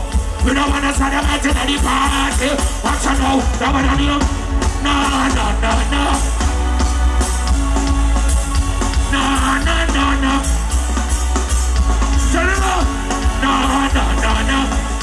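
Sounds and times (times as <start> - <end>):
live reggae band: 0.0 - 15.0
person singing: 0.2 - 10.8.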